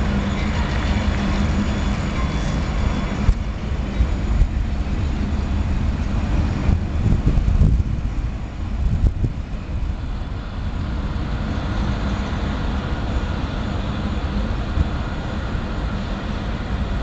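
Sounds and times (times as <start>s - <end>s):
freight train wheels clattering: 0.0s - 10.0s
low train rumble: 0.0s - 17.0s
wind on microphone: 0.0s - 17.0s.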